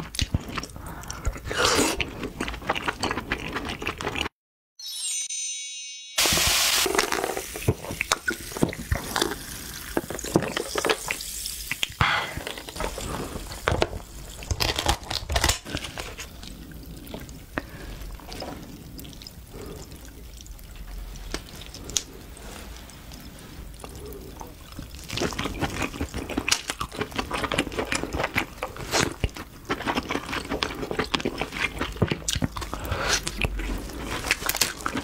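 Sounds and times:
scissors cracking crab shell: 14.4 - 15.8.

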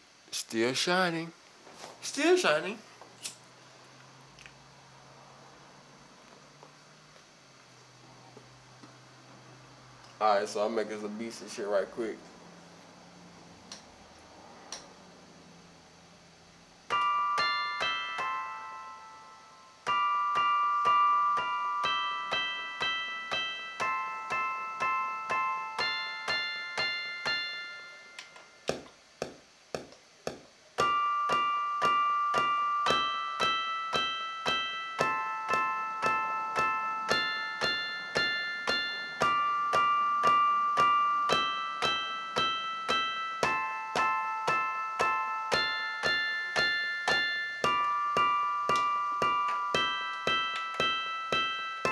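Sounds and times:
electric piano chords: 30.8 - 51.9.

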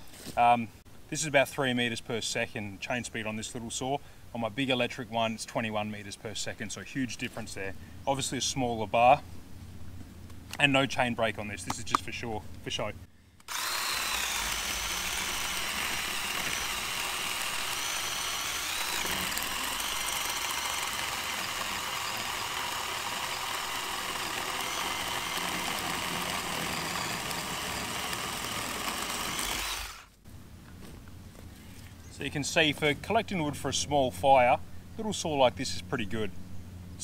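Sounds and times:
electric chainsaw cutting wood: 13.4 - 30.2.

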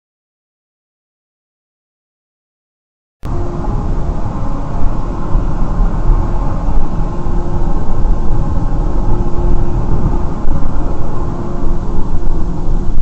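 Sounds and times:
car tyre and engine rumble: 3.3 - 13.0
faint steady hum: 3.3 - 13.0.

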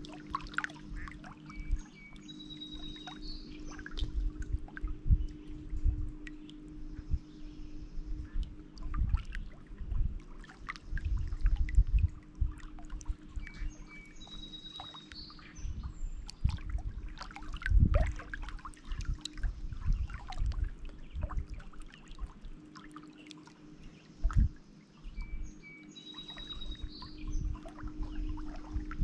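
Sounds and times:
songbird whistling: 1.0 - 4.3, 13.3 - 16.5, 25.0 - 28.9.

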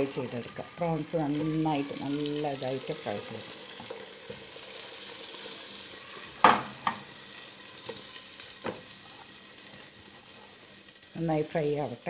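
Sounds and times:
prawns sizzling in oil: 0.0 - 12.0
knocks in a pan: 6.4 - 7.0.

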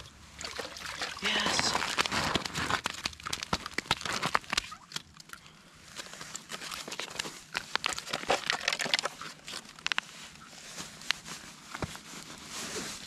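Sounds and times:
snow and ice crunching: 1.2 - 4.6.

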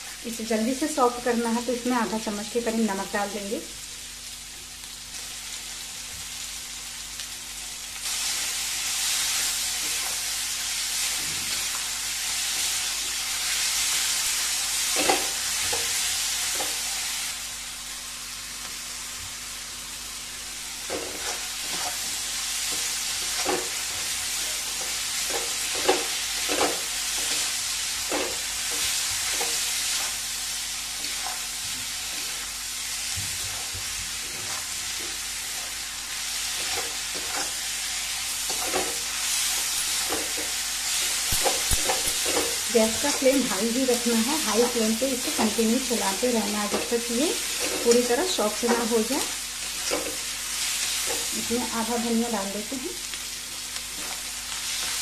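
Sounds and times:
vegetables sizzling in hot oil: 0.0 - 55.0
spatula scraping and knocking pan: 38.4 - 43.5.

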